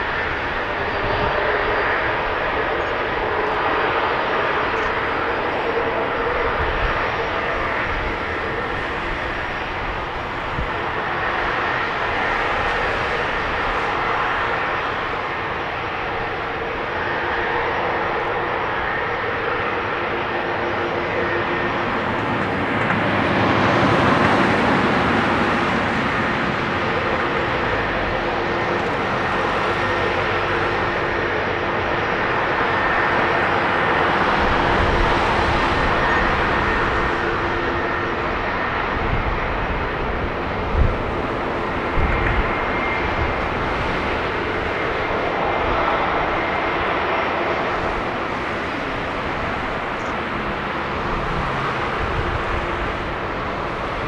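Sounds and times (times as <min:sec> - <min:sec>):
jet engines roaring: 0:00.0 - 0:54.0.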